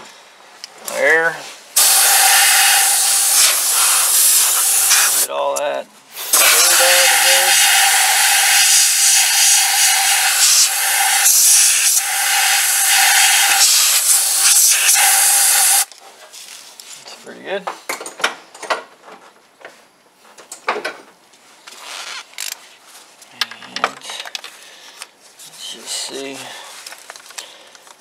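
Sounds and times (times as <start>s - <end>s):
compressed air hissing: 1.7s - 5.3s, 6.1s - 15.9s.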